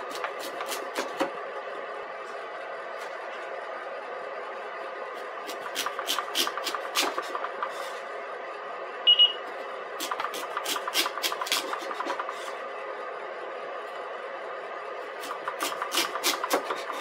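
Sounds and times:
knife slicing sweet potato: 0:00.0 - 0:01.4, 0:05.4 - 0:07.6, 0:10.0 - 0:12.4, 0:15.2 - 0:17.0
steady background hum: 0:00.0 - 0:17.0
short electronic beeps: 0:09.1 - 0:09.4.

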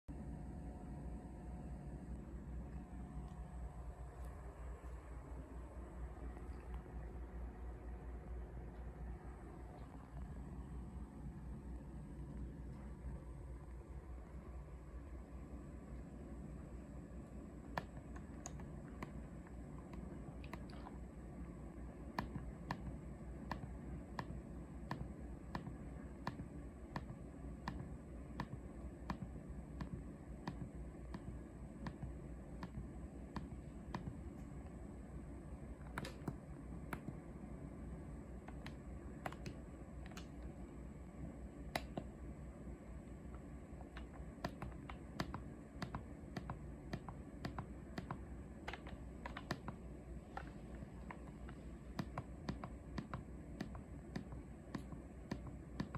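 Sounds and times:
low steady hum: 0:00.0 - 0:55.9
remote control buttons clicking: 0:35.9 - 0:37.2, 0:38.4 - 0:40.5, 0:43.8 - 0:55.9.

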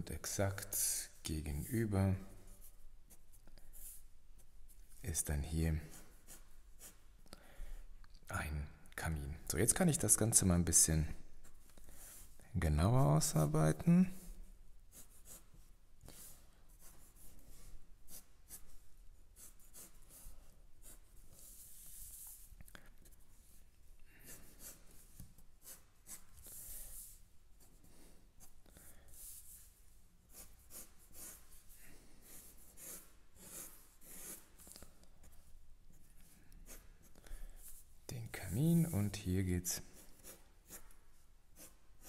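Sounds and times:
pen scratching on paper: 0:14.9 - 0:23.6, 0:24.2 - 0:27.8, 0:30.3 - 0:31.6, 0:32.2 - 0:37.2, 0:39.9 - 0:42.0.

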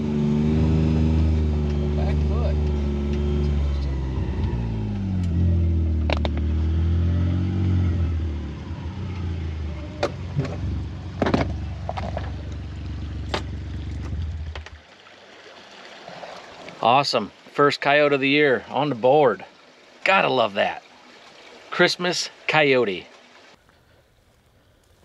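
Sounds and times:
utility vehicle engine running: 0:00.0 - 0:14.8.

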